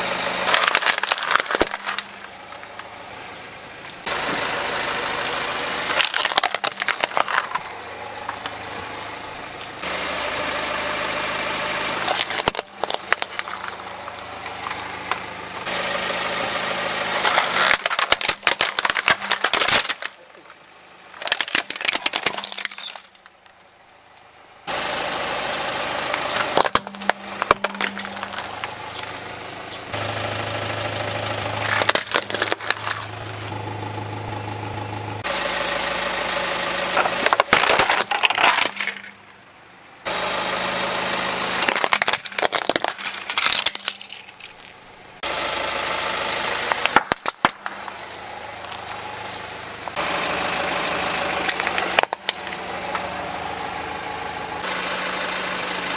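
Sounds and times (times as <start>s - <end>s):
car engine idling: 0.0s - 55.9s
plastic cracking under tyre: 0.4s - 2.9s, 5.9s - 8.6s, 12.1s - 15.3s, 17.1s - 23.6s, 26.2s - 29.1s, 31.6s - 33.1s, 37.0s - 39.4s, 41.6s - 44.8s, 46.7s - 48.0s, 51.4s - 52.6s.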